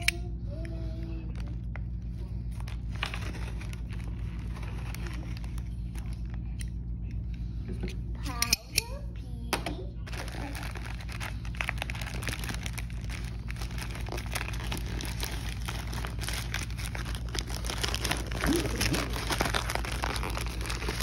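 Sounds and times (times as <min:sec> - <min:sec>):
plastic bag crinkling: 0:01.3 - 0:06.6, 0:10.1 - 0:21.0.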